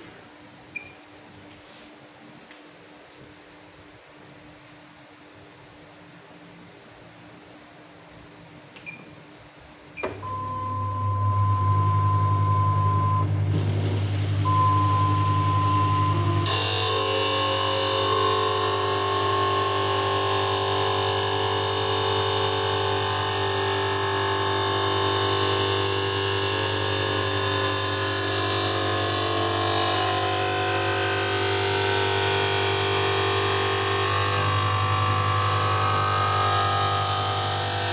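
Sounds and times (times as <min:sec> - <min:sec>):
motor hum and whine: 0:06.4 - 0:37.9
short beeps: 0:10.2 - 0:13.4, 0:14.4 - 0:16.5
grinding wheel cutting lens: 0:12.1 - 0:37.9.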